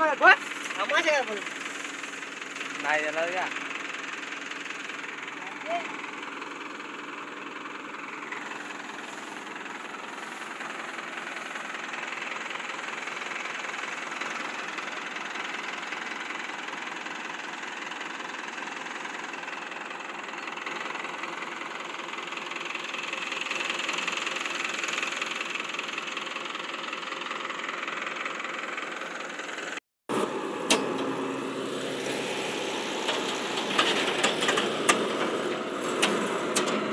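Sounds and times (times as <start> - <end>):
diesel engine running: 0.0 - 36.9
sharp clicks and knocks: 33.0 - 36.9.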